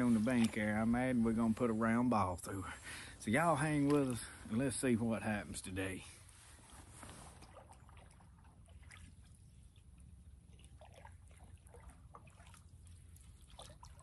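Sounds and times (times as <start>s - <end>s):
water dripping and trickling: 7.5s - 14.0s.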